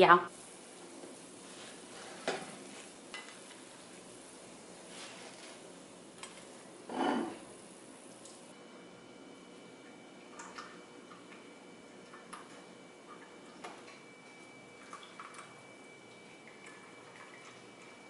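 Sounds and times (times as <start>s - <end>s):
tea pouring into cups: 9.8s - 18.0s.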